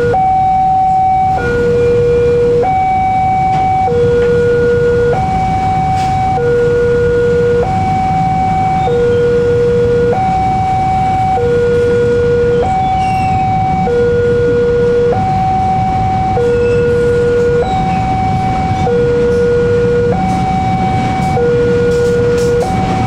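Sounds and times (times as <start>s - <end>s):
freight wagons rumbling: 0.0s - 23.0s
railroad crossing two-tone alarm: 0.0s - 23.0s.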